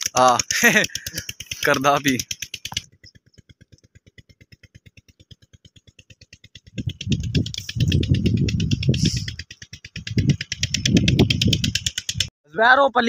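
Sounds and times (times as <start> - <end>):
rapid ticking: 0.0 - 12.3
rustling and rumbling on microphone: 5.6 - 12.3.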